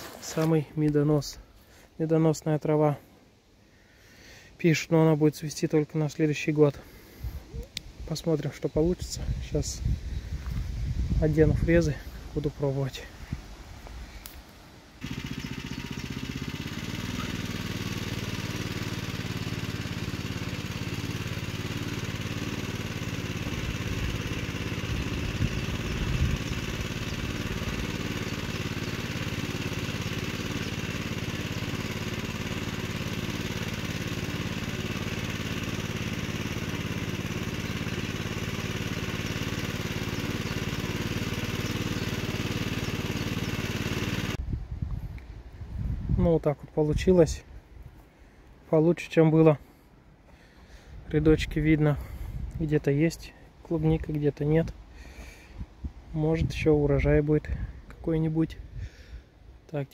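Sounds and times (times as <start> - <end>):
tiller blades in soil: 0.0 - 1.5, 15.0 - 44.4
tractor engine running under load: 15.0 - 44.4.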